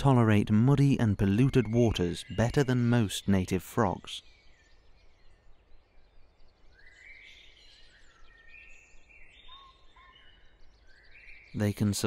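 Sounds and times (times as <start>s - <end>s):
birds chirping and trilling: 0.0s - 12.0s
low background noise: 0.0s - 12.0s.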